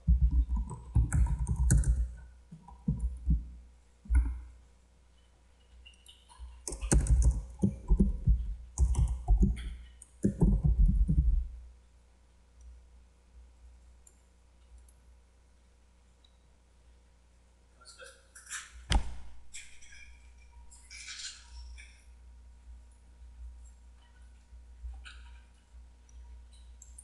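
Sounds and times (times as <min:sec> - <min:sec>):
typing on computer keyboard: 0:00.1 - 0:03.4, 0:05.9 - 0:11.4
faint clicks: 0:25.0 - 0:27.0.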